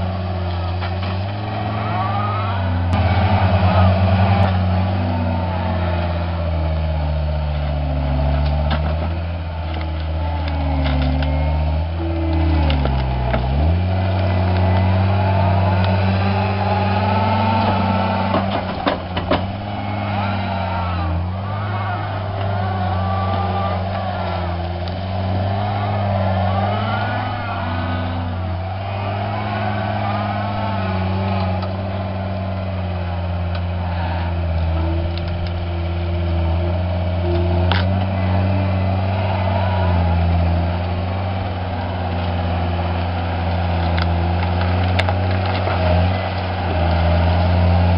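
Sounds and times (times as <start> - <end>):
diesel engine working hard: 0.0 - 47.9
brief clicks and cracks: 37.3 - 38.0, 43.8 - 47.0.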